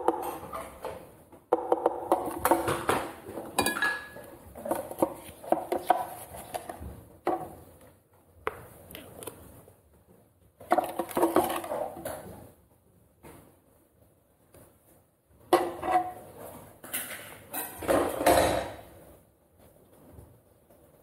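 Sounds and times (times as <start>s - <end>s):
hard objects clattering: 0.0s - 7.7s, 10.6s - 12.5s.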